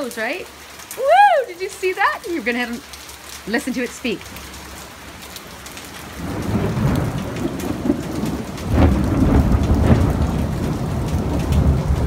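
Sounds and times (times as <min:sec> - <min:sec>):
rain pattering on patio: 0:00.0 - 0:12.0
thunder rumbling: 0:05.9 - 0:12.0.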